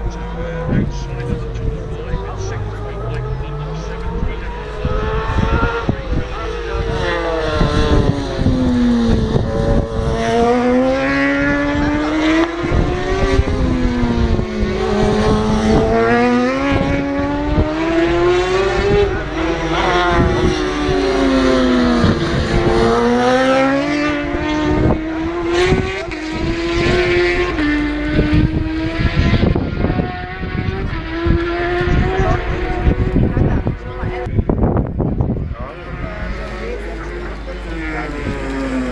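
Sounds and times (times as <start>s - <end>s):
racing motorcycle engines accelerating: 0.0s - 38.9s.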